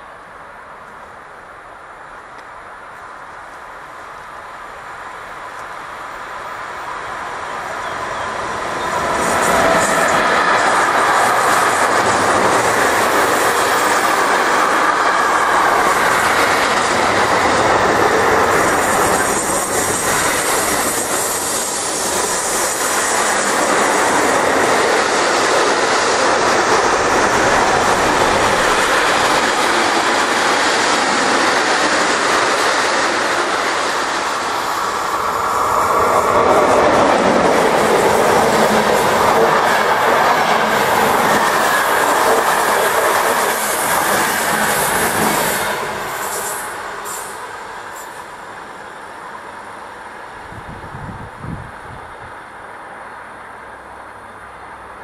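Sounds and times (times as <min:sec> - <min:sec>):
freight train wheels rolling: 0:06.6 - 0:49.6.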